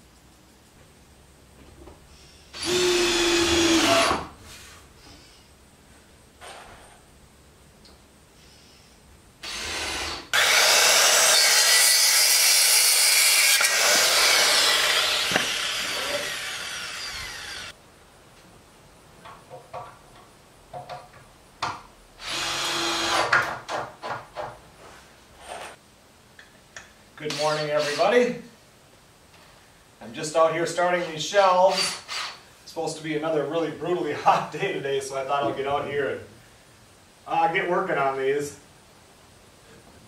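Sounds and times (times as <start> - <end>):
short bursts of tool work: 2.2 - 4.3, 9.4 - 17.7, 27.3 - 28.1, 31.7 - 32.4
power saw cutting wood: 9.5 - 17.7.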